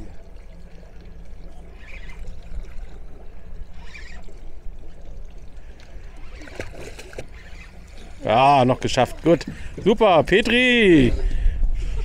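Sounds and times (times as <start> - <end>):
water splashing and sloshing: 0.0 - 12.0
steady low rumble: 7.8 - 12.0.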